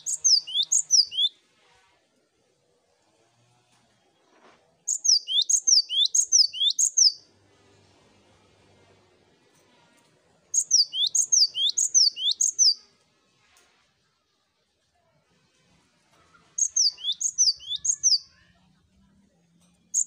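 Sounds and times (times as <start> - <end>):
bird whistling song: 0.0 - 1.4, 4.9 - 7.2, 10.5 - 12.8, 16.6 - 18.3.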